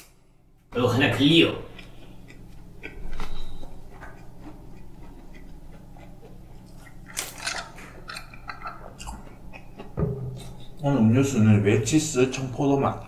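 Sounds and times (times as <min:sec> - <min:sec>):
person chewing: 0:01.6 - 0:10.8.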